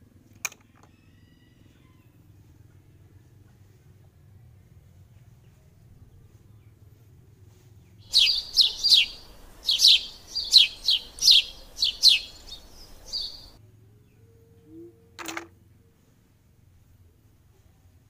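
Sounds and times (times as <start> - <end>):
bird chirping: 8.0 - 13.6
faint hiss: 8.0 - 13.6.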